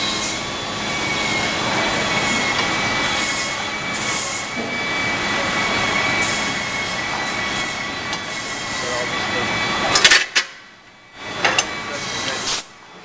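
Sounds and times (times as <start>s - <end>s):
workshop machinery high whine: 0.0s - 13.0s
machinery hiss: 11.8s - 12.7s.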